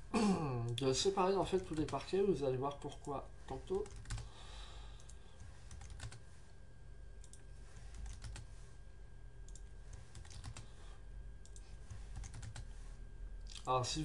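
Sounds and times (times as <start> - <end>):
low steady hum: 0.0 - 14.0
keyboard and mouse clicking: 9.5 - 10.6, 11.4 - 12.7.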